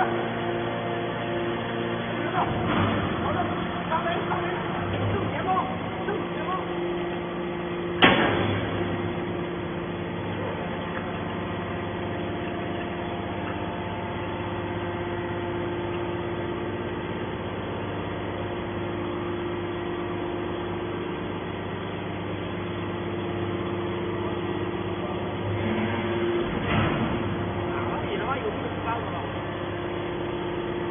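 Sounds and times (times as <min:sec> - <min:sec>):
hydraulic power unit humming: 0:00.0 - 0:30.9
loud knock: 0:08.0 - 0:08.8.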